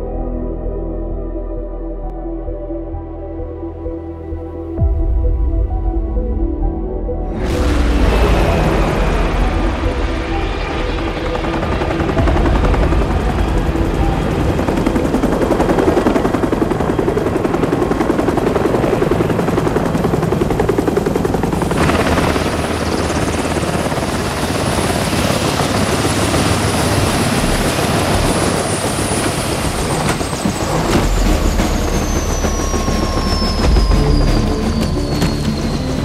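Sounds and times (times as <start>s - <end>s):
turbine whine: 3.8s - 36.0s
helicopter rotor chopping: 7.4s - 36.0s.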